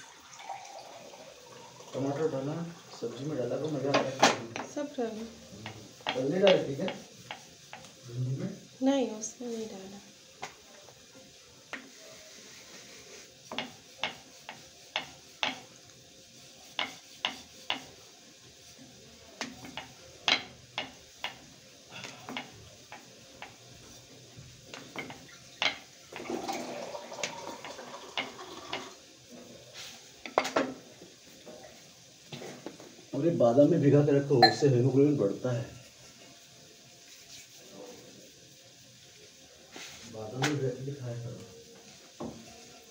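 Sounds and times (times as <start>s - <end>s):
dough rubbing: 3.4s - 10.0s, 10.8s - 30.2s, 34.6s - 42.9s.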